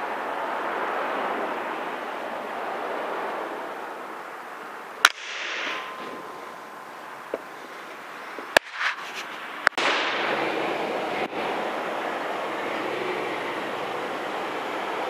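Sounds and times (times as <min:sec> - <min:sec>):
steady background hiss: 0:00.0 - 0:15.0
air rifle cracks: 0:05.0 - 0:05.8.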